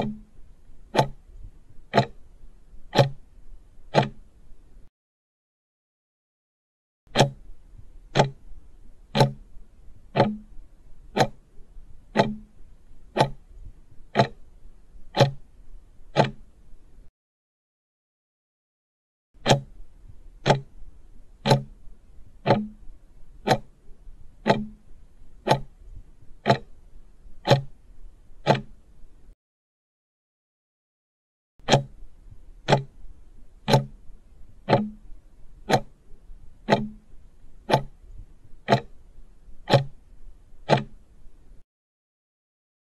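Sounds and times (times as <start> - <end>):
clock ticking: 0.0 - 2.3, 2.9 - 4.3, 7.1 - 13.5, 14.1 - 16.6, 19.4 - 19.8, 20.4 - 23.8, 24.4 - 25.8, 26.4 - 26.8, 27.4 - 27.7, 28.4 - 28.8, 31.6 - 32.0, 32.6 - 33.0, 33.6 - 38.0, 38.6 - 39.0, 39.7 - 40.0, 40.6 - 41.1.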